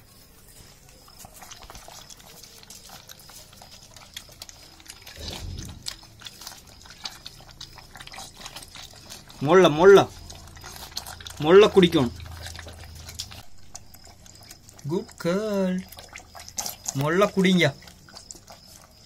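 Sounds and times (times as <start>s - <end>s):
puppies lapping milk: 0.0s - 19.0s
brief low sound: 5.2s - 6.2s.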